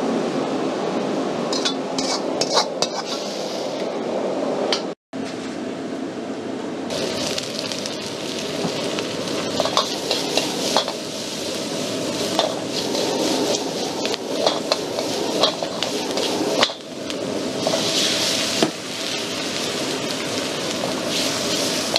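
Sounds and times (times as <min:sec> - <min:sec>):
metal clinks of wok and utensils: 0:01.5 - 0:03.1
onions sizzling in a wok: 0:06.9 - 0:21.9.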